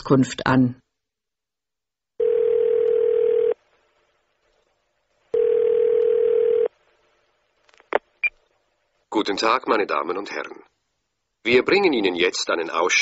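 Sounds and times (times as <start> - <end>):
telephone ringing tone beeps: 2.2 - 3.6, 5.4 - 6.7.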